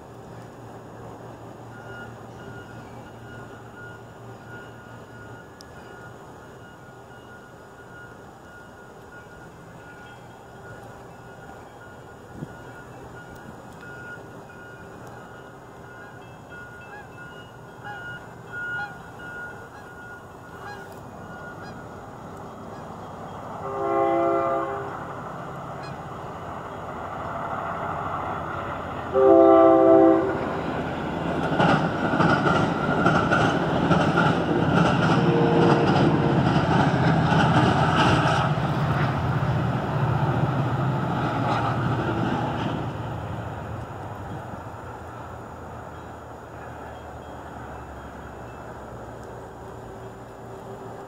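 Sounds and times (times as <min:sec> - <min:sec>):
train rumbling past: 0:00.0 - 0:51.0
train horn blasts: 0:23.6 - 0:25.1, 0:29.1 - 0:30.6, 0:35.1 - 0:36.4
wheels clacking over rails: 0:30.3 - 0:45.3.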